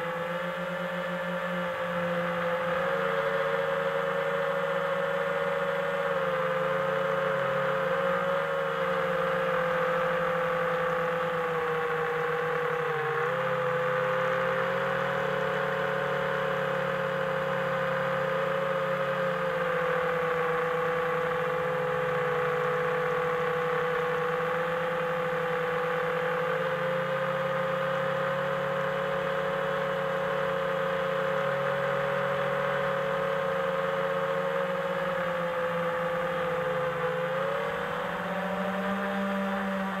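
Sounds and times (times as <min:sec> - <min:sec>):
drone motors whining: 0:04.7 - 0:40.0.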